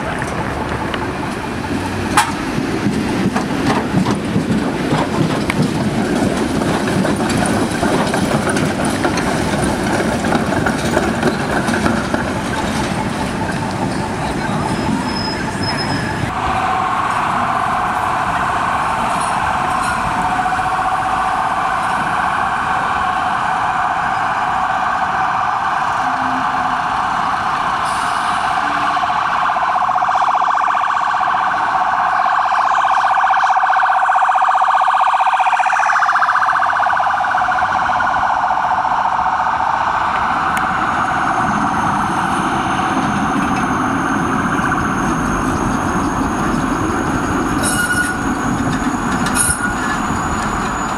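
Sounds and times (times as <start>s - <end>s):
tram wheels screeching on rails: 0.0s - 30.1s, 37.6s - 50.9s
thin high whistle: 47.6s - 48.2s.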